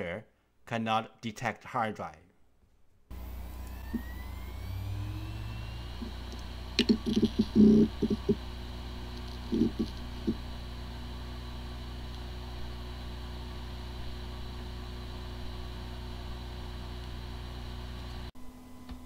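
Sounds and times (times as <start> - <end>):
hard drive spinning whine: 3.1 - 19.0
hard drive heads clicking: 6.0 - 8.5, 9.1 - 10.4.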